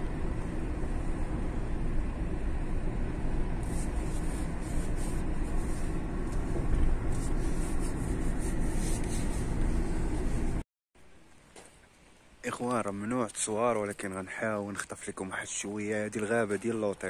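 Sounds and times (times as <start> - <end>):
car engine and tyre rumble: 0.0 - 10.6.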